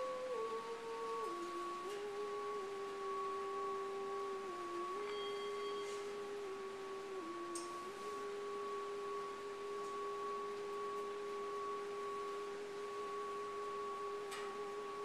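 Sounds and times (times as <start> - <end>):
singing bowl ringing: 5.0 - 6.2.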